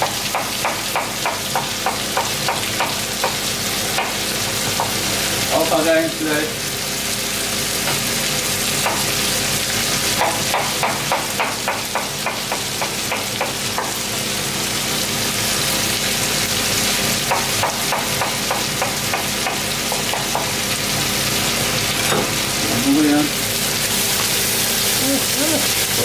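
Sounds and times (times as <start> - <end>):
knife chopping on wooden board: 0.0 - 3.4, 8.8 - 9.1, 10.2 - 14.0, 17.3 - 20.5
food sizzling in a pan: 0.0 - 26.0.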